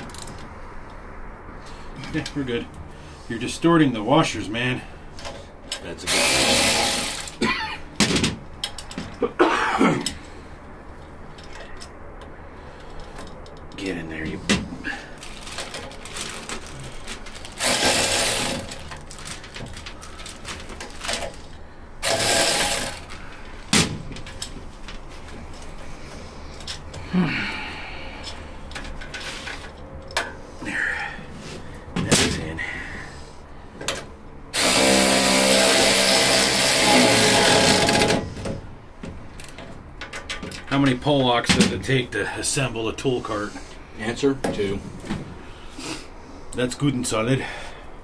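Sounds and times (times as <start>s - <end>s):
power driver running: 6.1s - 7.4s, 17.5s - 18.9s, 22.0s - 23.3s, 34.5s - 38.3s.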